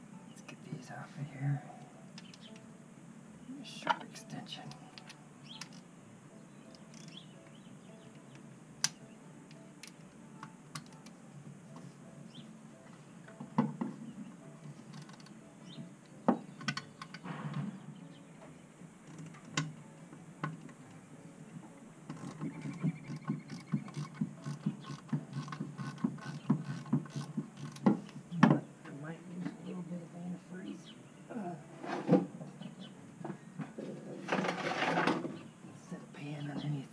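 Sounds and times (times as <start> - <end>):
ratchet metal clicks: 22.1 - 27.9.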